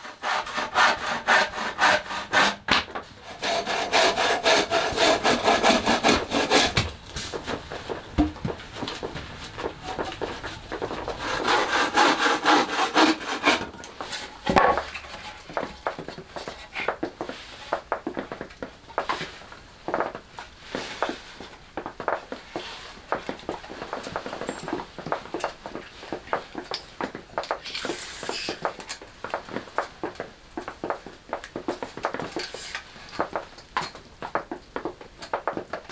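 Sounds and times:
bow saw cutting wood: 0:00.0 - 0:06.9, 0:09.8 - 0:15.4
sharp wooden knocks: 0:04.4 - 0:13.7.

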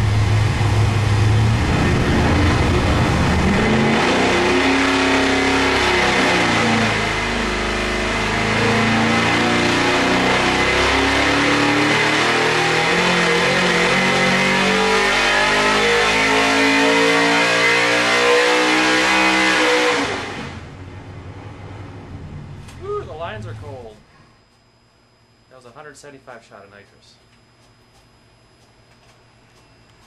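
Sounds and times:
engine revving at full throttle: 0:00.0 - 0:22.4.

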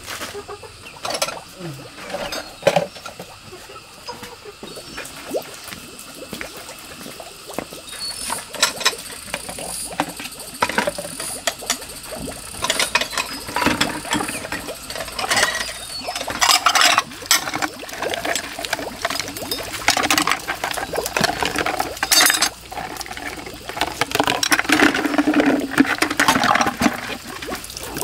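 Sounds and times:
ceramic bowls clinking: 0:01.0 - 0:03.3, 0:12.6 - 0:17.6, 0:19.4 - 0:22.6
water splashing: 0:01.0 - 0:28.0.

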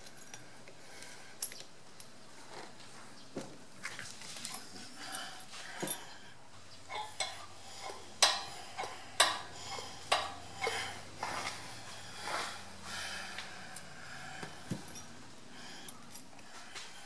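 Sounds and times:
metal parts clinking and knocking: 0:06.9 - 0:10.8.

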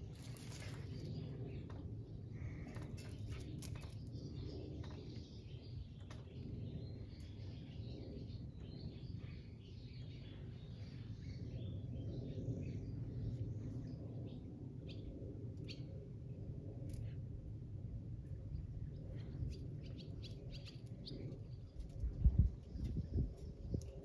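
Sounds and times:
small birds chirping: 0:18.9 - 0:24.0.

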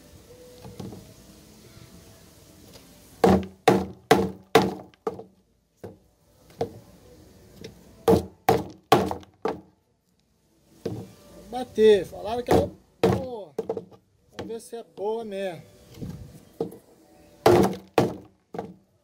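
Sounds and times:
knife chopping into wood: 0:03.2 - 0:05.3, 0:08.1 - 0:09.6, 0:17.5 - 0:18.8.

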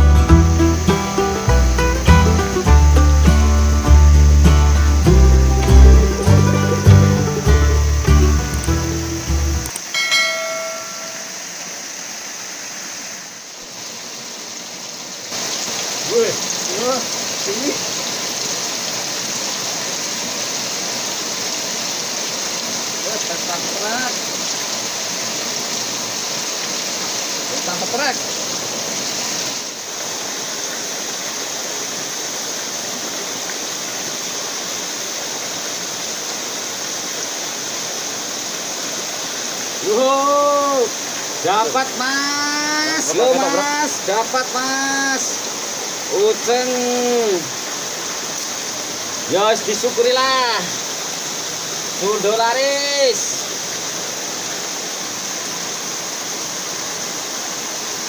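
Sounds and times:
flowing river water: 0:00.0 - 0:58.0
ringing tone: 0:09.9 - 0:11.6.

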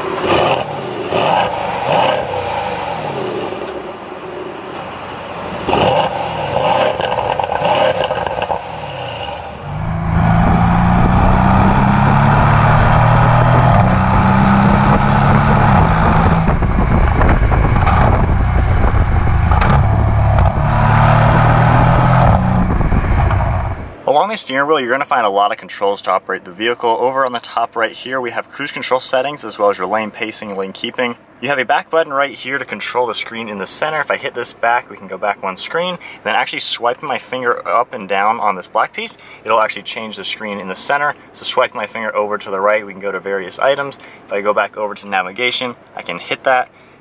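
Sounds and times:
car engine starting and revving: 0:00.0 - 0:03.8, 0:05.6 - 0:24.0
car exhaust droning while driving: 0:05.6 - 0:24.0.

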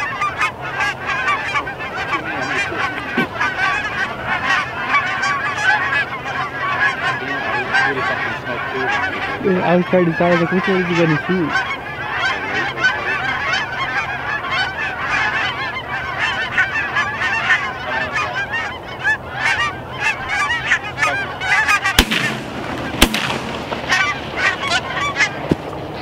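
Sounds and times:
geese honking: 0:00.0 - 0:26.0
shotgun shots: 0:21.9 - 0:25.1.

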